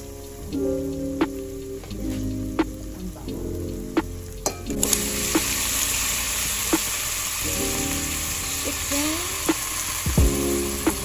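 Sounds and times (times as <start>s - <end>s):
chicken sizzling in hot oil: 4.7s - 11.0s.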